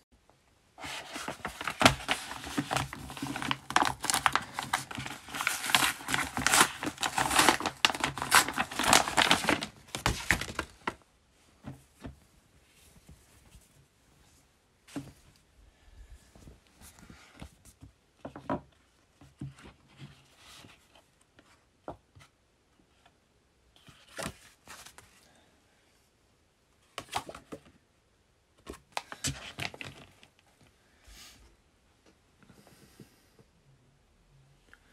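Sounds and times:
paper pages turning: 0.8s - 11.0s.

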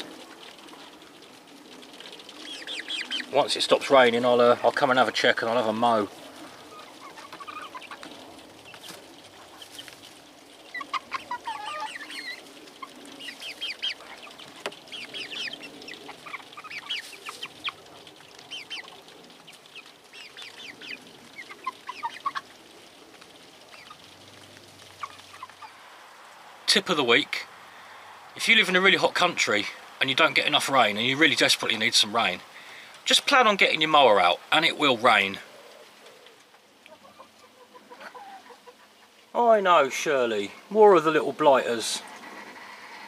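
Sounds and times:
young chickens cheeping and clucking: 0.0s - 26.6s, 35.2s - 39.3s.

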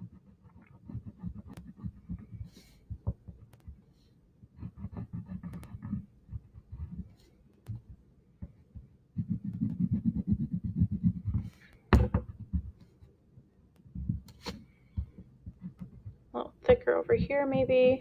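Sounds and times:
crayon rubbing on paper: 0.0s - 2.9s, 4.6s - 7.9s, 9.2s - 11.7s.

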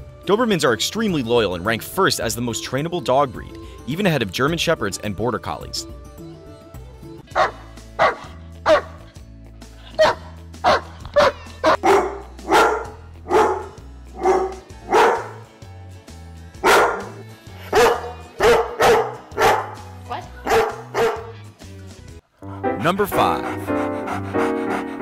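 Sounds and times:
low backing music: 0.0s - 25.0s
dogs barking sharply: 7.3s - 9.1s, 10.0s - 15.5s, 16.6s - 21.4s.

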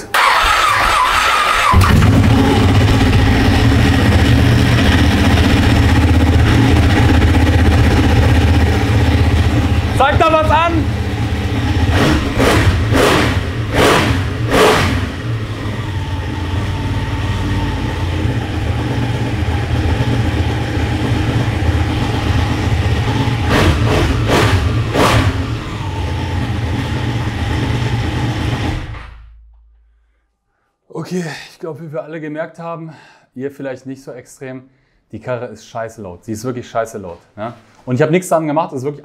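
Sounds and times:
motorcycle engine idling: 1.8s - 12.0s, 15.1s - 23.9s.

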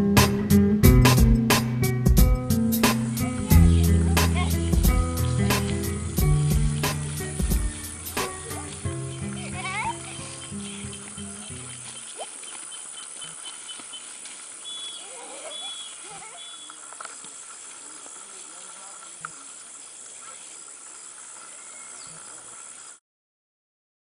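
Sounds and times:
steady hiss: 1.1s - 23.0s
faint distant voices: 3.0s - 13.7s.

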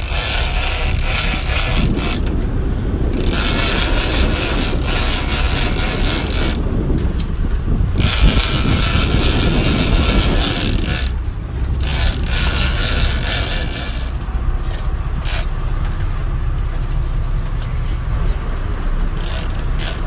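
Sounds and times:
fishing reel gears grinding: 0.0s - 2.3s, 3.1s - 6.6s, 8.0s - 14.2s, 15.2s - 15.5s, 19.2s - 20.0s
low rumble: 0.0s - 20.0s.

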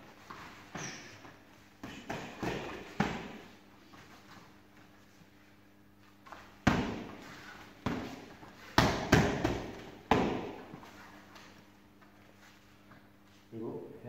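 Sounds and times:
sharp smacks of strikes on pads: 1.8s - 3.4s, 6.6s - 7.2s, 7.8s - 10.7s.

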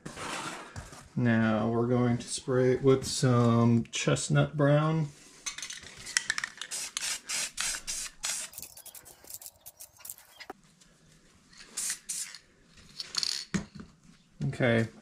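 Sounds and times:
spray can hissing: 6.4s - 10.5s, 11.7s - 12.4s.

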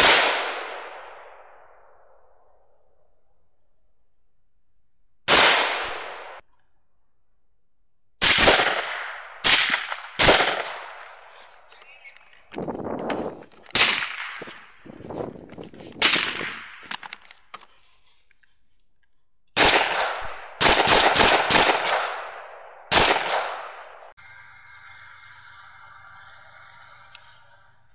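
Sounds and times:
rifle shots: 0.0s - 1.9s, 5.3s - 6.4s, 8.2s - 11.3s, 13.7s - 14.5s, 16.0s - 16.9s, 19.6s - 24.1s.

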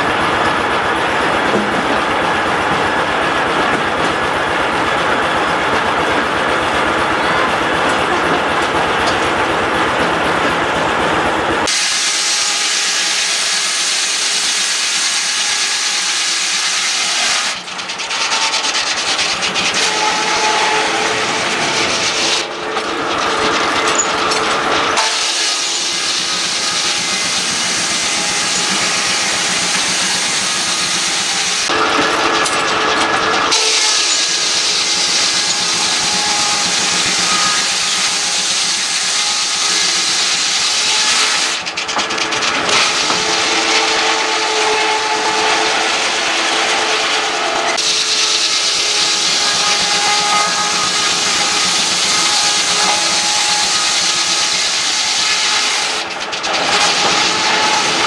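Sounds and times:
sawmill and steam engine running: 0.0s - 58.0s.

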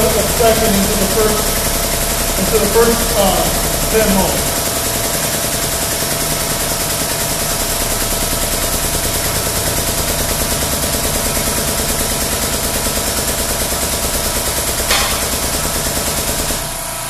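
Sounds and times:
air pump chattering: 0.0s - 17.0s
sharp metallic clank: 14.8s - 15.8s.

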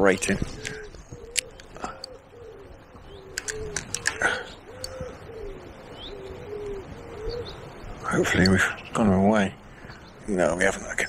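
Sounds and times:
pigeon cooing: 0.5s - 8.7s.

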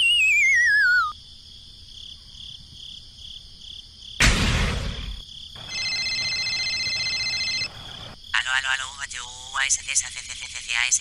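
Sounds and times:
faint cricket chirps: 0.0s - 11.0s
electronic phone ring tone: 5.6s - 8.2s.

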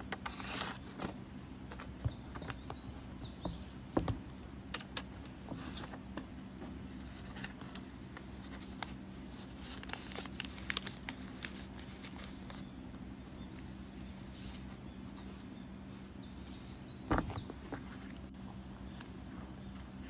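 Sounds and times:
steady low hum: 0.0s - 20.0s
plastic sleeve and paper rustling: 0.1s - 2.9s, 4.8s - 6.1s, 6.8s - 12.6s.

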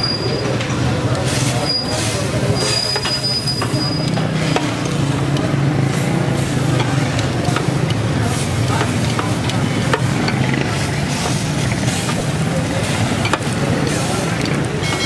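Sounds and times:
metal spatulas clacking on griddle: 6.6s - 15.0s.

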